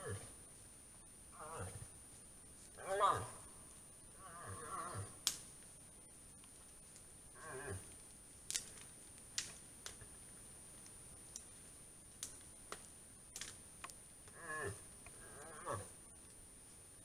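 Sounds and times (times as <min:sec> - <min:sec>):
moose calling: 0:02.8 - 0:03.5.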